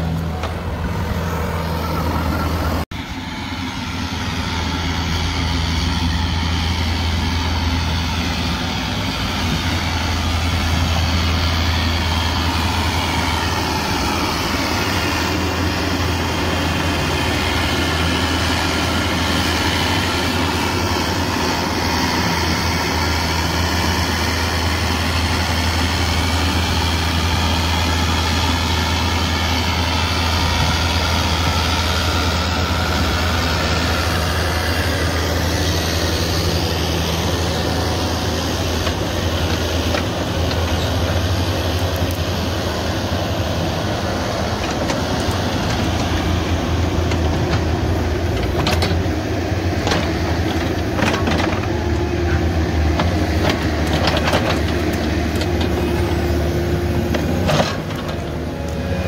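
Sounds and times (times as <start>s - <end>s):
diesel engines under load: 0.0s - 59.0s.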